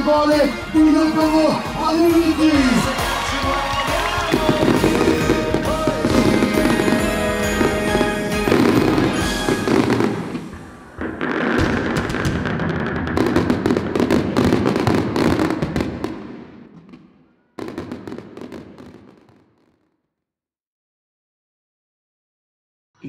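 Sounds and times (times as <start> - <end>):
music: 0.0 - 11.9
fireworks bursting and crackling: 0.0 - 19.9.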